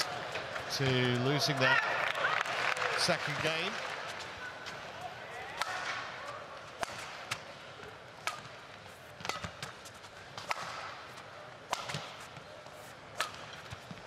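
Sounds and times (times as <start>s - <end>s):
racket striking shuttlecock: 5.6s - 6.1s, 6.8s - 7.5s, 8.2s - 12.3s, 13.1s - 14.0s.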